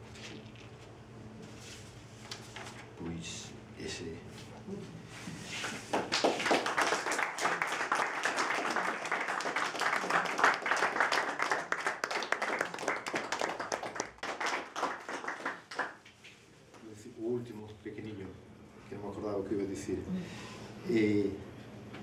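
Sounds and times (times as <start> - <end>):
audience applauding: 5.6 - 16.1.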